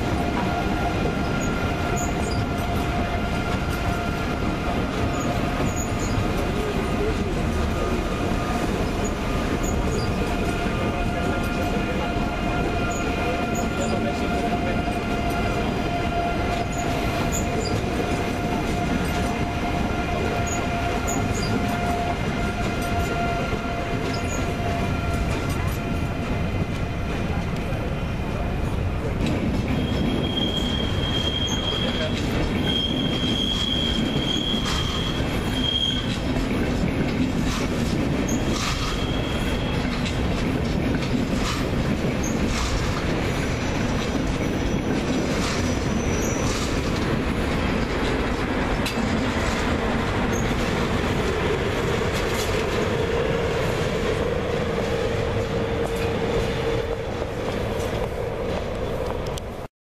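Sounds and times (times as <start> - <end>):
wheels clacking over rail joints: 0.0 - 27.8, 29.1 - 59.7
train rumbling past: 0.0 - 59.7
high wheel squeal: 1.2 - 4.0, 5.1 - 6.2, 7.8 - 12.0, 12.6 - 26.1, 29.7 - 36.2, 38.3 - 40.1, 43.4 - 46.7.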